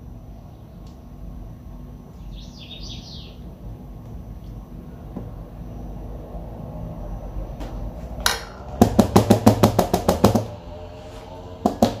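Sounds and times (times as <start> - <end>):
knocking on plastic container: 8.8 - 10.5.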